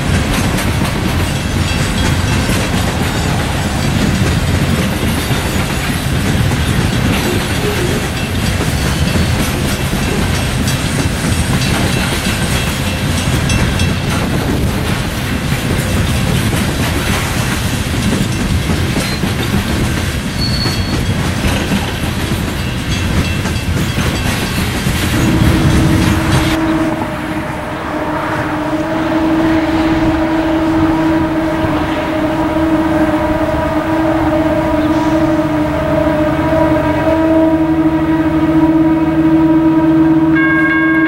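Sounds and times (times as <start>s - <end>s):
steel wheels clattering on rails: 0.0s - 36.0s
freight train rumbling past: 0.0s - 41.0s.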